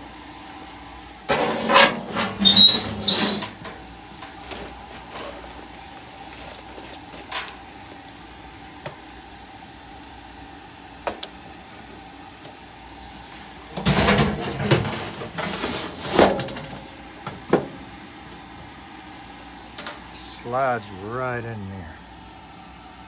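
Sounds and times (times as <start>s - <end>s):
steady low hum: 0.0s - 23.0s
metal scraping and clanking: 1.3s - 5.4s, 13.8s - 16.8s.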